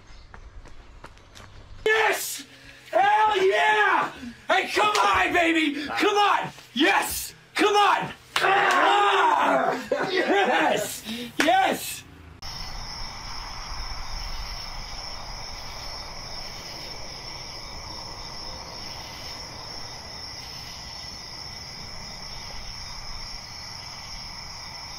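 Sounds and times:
crickets chirping: 0:01.9 - 0:24.9.

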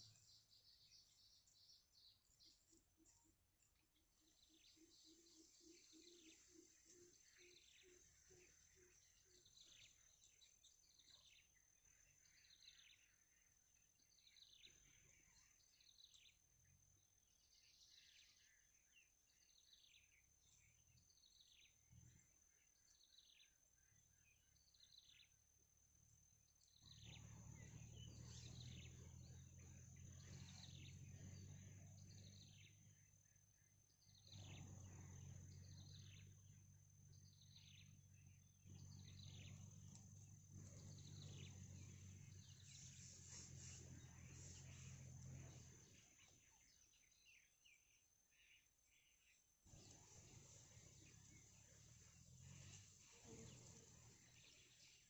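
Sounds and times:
low rumble: 0:34.2 - 0:46.4
thin high whine: 0:38.7 - 0:46.1.

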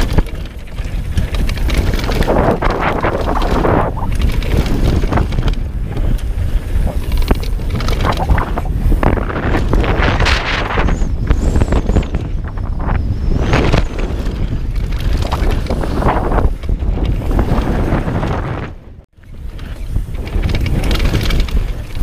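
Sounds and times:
tyres crunching on gravel trail: 0:00.0 - 0:10.1
bike knocking and rattling: 0:00.0 - 0:22.0
wind buffeting microphone: 0:00.0 - 0:22.0.

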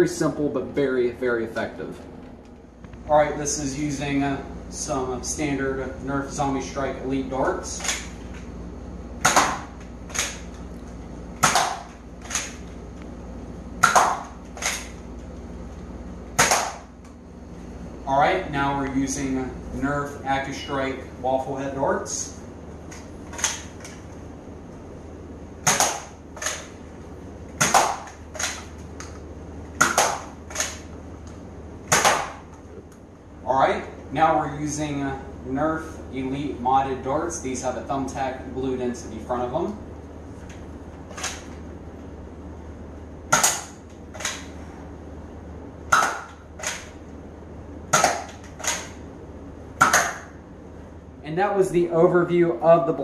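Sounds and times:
dart blaster sharp pop: 0:09.2 - 0:09.7, 0:11.4 - 0:11.9, 0:13.8 - 0:14.3, 0:16.4 - 0:16.8, 0:25.6 - 0:26.1, 0:31.9 - 0:32.4, 0:45.9 - 0:46.4, 0:49.8 - 0:50.3.

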